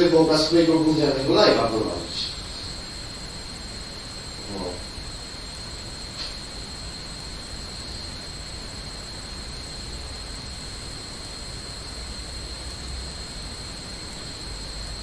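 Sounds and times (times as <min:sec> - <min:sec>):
faint low hum: 0:00.0 - 0:03.3, 0:04.2 - 0:06.4
microphone hiss: 0:00.0 - 0:03.3
high-pitched whine: 0:00.0 - 0:15.0.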